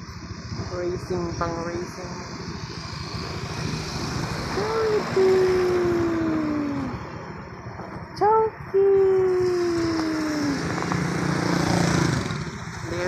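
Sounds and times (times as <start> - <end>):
road noise: 0.0 - 13.0
person calling out: 4.6 - 7.0, 8.2 - 10.7.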